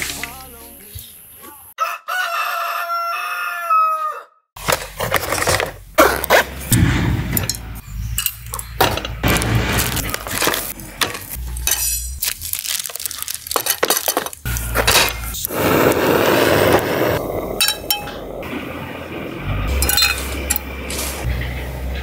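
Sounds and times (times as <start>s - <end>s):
metal cookware clinking: 7.3s - 9.2s, 9.8s - 15.3s, 17.6s - 18.3s, 19.7s - 20.8s
gas burner hissing: 14.4s - 22.0s.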